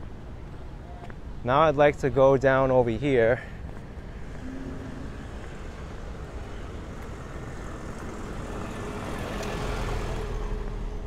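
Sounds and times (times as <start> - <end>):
faint engine hum: 3.4 - 11.0
vehicle passing by: 4.1 - 11.0.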